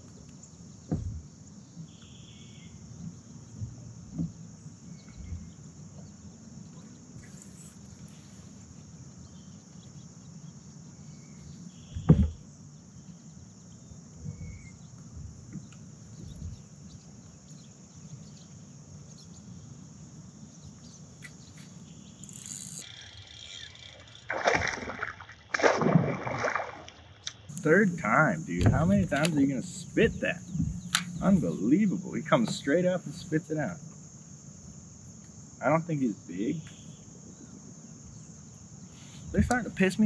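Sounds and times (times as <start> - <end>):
insects trilling: 0.0 - 40.0
fish splashing at surface: 24.2 - 27.1.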